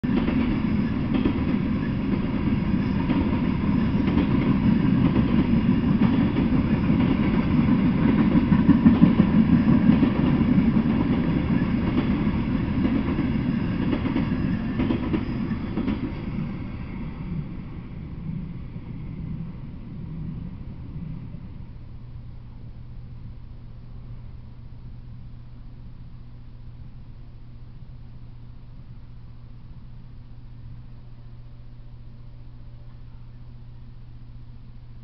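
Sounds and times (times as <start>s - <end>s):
freight train wheels rumbling: 0.0s - 25.4s.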